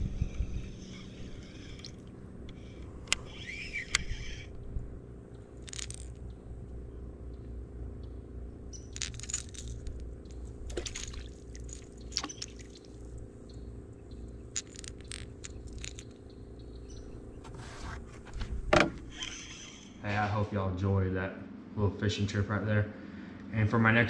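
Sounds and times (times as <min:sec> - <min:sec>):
steady low hum: 0:00.0 - 0:24.0
fishing reel clicks and scrapes: 0:00.2 - 0:04.6, 0:05.6 - 0:06.2, 0:14.5 - 0:16.2.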